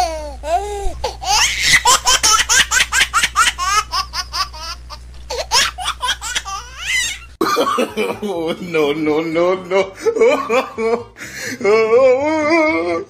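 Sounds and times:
person giggling: 9.7s - 12.9s.

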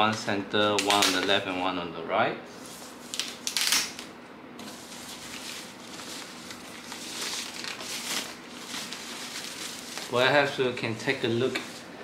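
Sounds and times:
packing wrap rustling: 2.6s - 11.9s.

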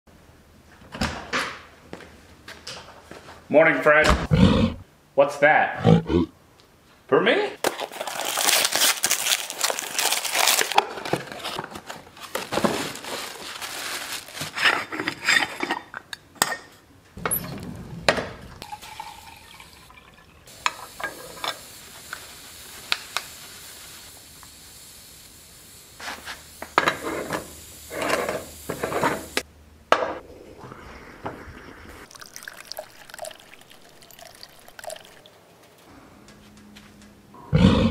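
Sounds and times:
wrapping paper tearing and crinkling: 7.6s - 14.7s
water pouring: 17.2s - 21.4s, 30.6s - 35.3s.

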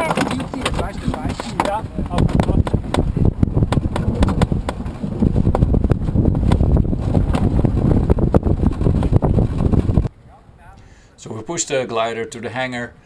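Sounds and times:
airframe knocks and rattles: 0.0s - 10.1s
glider wheel rolling on asphalt: 0.0s - 10.1s.

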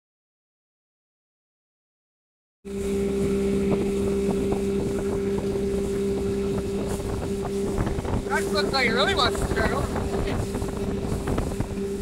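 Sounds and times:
outboard motor running: 2.7s - 12.0s
wind on microphone: 2.7s - 12.0s.

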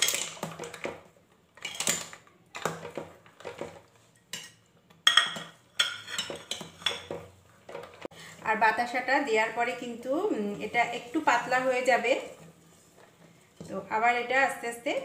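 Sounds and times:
metal ladle scraping a pot: 5.8s - 7.2s.

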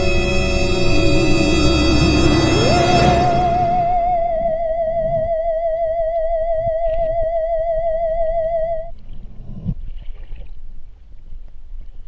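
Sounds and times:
eerie held note with wobble: 0.0s - 8.8s.

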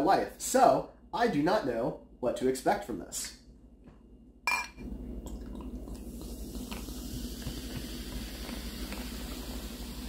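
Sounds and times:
fizzing bubbles: 5.0s - 10.0s.

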